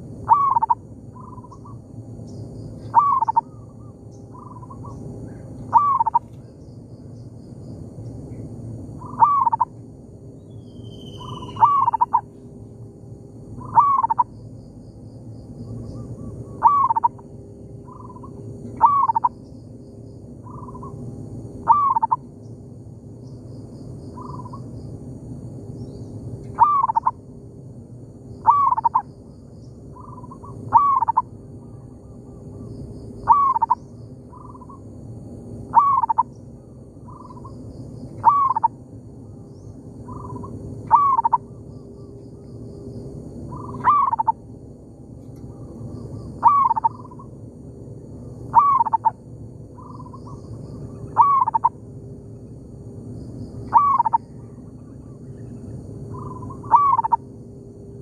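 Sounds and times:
dove cooing loudly: 0.2s - 1.7s, 2.9s - 3.6s, 5.7s - 6.3s, 9.0s - 9.7s, 11.2s - 12.3s, 13.6s - 14.3s, 16.5s - 17.2s, 17.9s - 19.3s, 21.6s - 22.2s, 26.6s - 27.1s, 28.4s - 29.0s, 30.0s - 31.3s, 33.2s - 34.8s, 35.7s - 36.3s, 38.2s - 38.7s, 40.1s - 41.5s, 43.5s - 44.4s, 46.4s - 47.3s, 48.5s - 49.2s, 49.8s - 51.8s, 53.7s - 54.5s, 56.1s - 57.2s
faint dove cooing: 2.9s - 6.3s, 9.0s - 9.6s, 11.2s - 12.2s, 13.6s - 14.2s, 16.2s - 17.2s, 17.9s - 19.3s, 21.7s - 22.2s, 28.5s - 29.0s, 30.0s - 32.4s, 33.3s - 33.8s, 35.7s - 36.2s, 38.2s - 38.7s, 40.1s - 41.4s, 43.6s - 44.3s, 46.4s - 47.2s, 48.5s - 49.1s, 49.8s - 51.7s, 53.7s - 55.6s, 56.2s - 57.2s.

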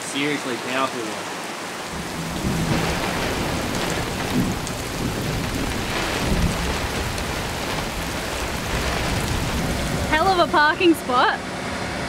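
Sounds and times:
heavy rain pouring: 0.0s - 12.0s
low rumble: 1.9s - 10.5s.

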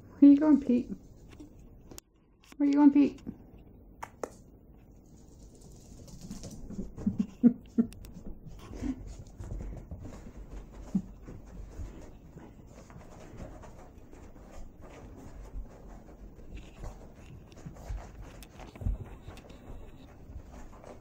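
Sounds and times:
dog scuffling on a rug: 8.2s - 21.0s.

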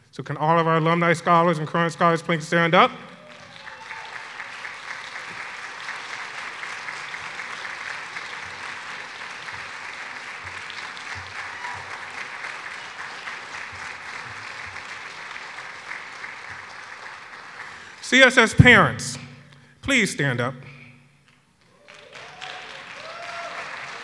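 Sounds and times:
audience applause: 3.0s - 18.4s, 21.6s - 24.0s.

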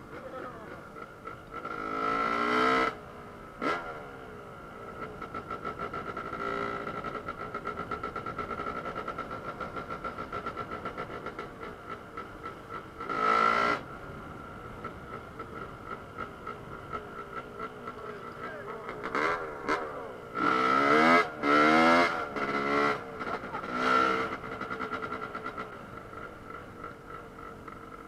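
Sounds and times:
dirt bike engines revving: 0.0s - 28.0s.

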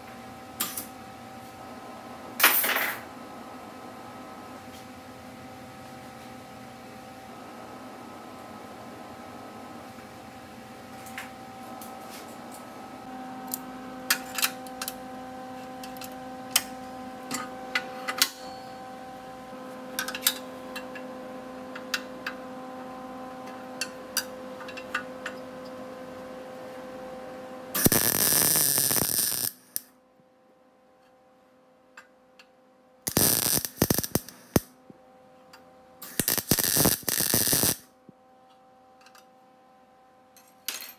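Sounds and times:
electrical hum: 0.0s - 40.4s
welding arc crackling: 27.8s - 29.9s, 33.1s - 34.7s, 36.0s - 37.9s
clicks and taps on steel parts: 39.0s - 39.3s.

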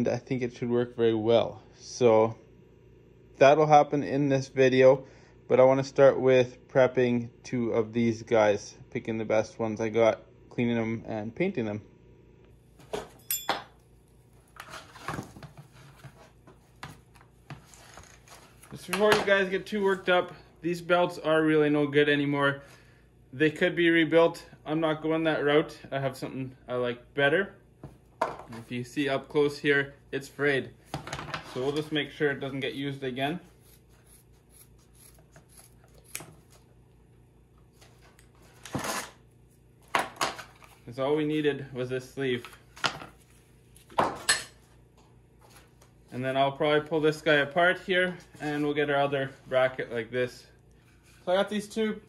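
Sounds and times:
metal brackets clinking: 13.2s - 13.7s.

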